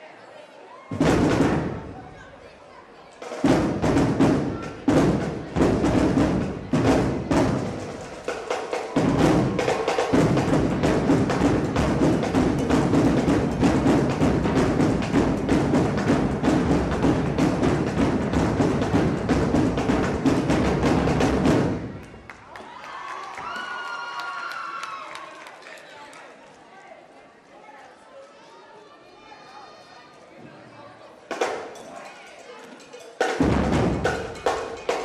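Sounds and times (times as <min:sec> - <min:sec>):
drum-heavy percussion music: 0:00.9 - 0:02.2, 0:03.2 - 0:22.3, 0:31.3 - 0:31.9, 0:33.0 - 0:35.0.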